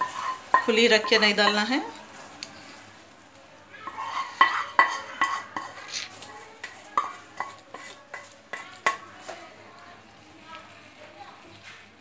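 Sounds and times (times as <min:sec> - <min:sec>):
spatula knocking on cookware: 0:00.0 - 0:01.7, 0:03.9 - 0:05.8, 0:06.6 - 0:09.4
spatula scraping pan: 0:00.0 - 0:02.9, 0:03.7 - 0:09.6.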